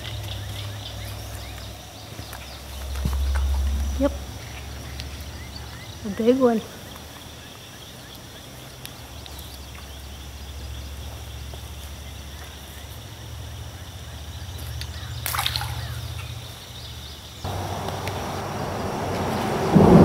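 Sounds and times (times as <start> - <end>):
fishing hook splashing into water: 15.2 - 16.0.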